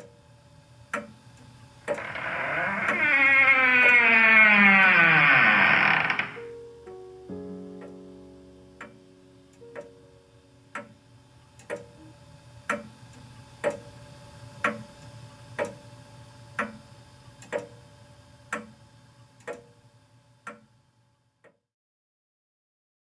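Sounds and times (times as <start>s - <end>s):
steady ticking: 8.7s - 11.0s, 11.6s - 14.0s, 16.6s - 16.8s, 17.4s - 17.8s.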